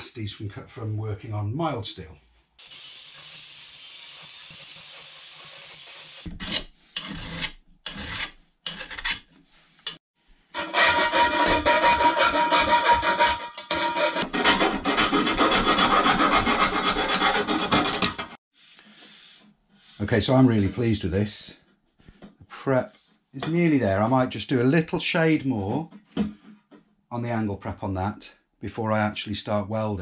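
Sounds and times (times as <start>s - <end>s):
file scraping metal pipe: 6.2s - 10.0s, 10.6s - 20.7s.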